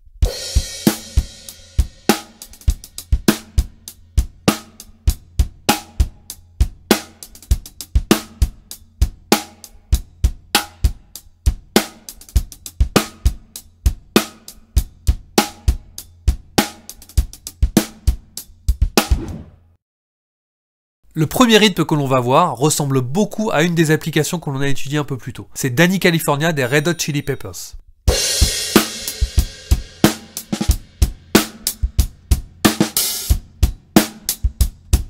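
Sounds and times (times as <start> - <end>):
drum kit playing rock groove: 0.0 - 19.5, 27.9 - 35.0.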